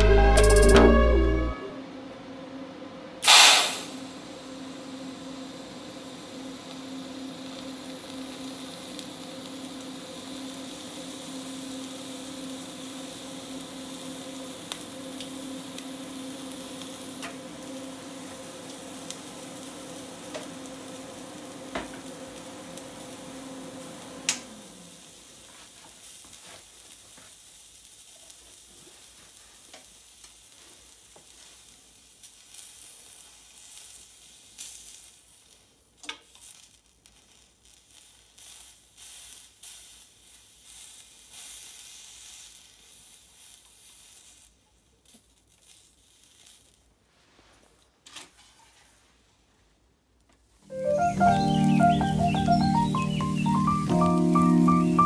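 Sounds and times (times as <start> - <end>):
welding machine hum: 3.2 - 46.9
meat sizzling and crackling: 7.1 - 23.8, 25.0 - 46.8.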